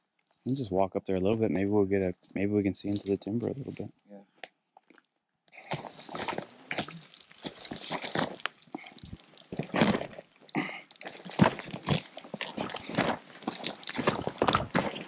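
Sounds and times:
footsteps on dirt road: 11.1 - 15.0.

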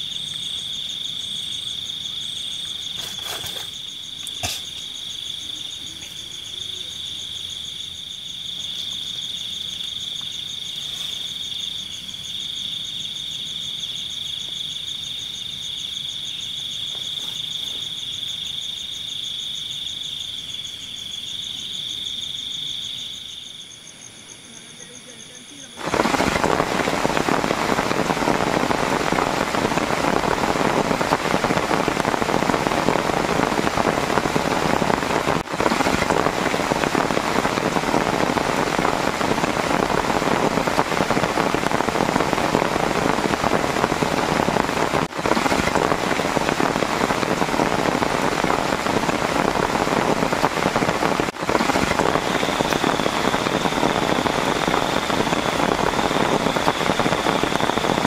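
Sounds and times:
heavy rain falling: 0.0 - 20.6, 24.8 - 58.0.

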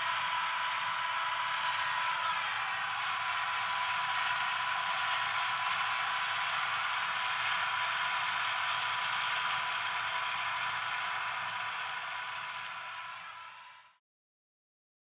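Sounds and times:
combine harvester running: 0.0 - 13.9
machine whine: 0.0 - 14.0.

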